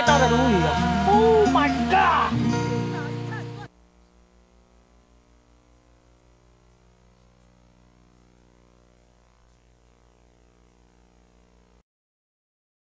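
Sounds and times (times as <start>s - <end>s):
background music: 0.0s - 3.7s
faint low hum: 2.8s - 11.8s.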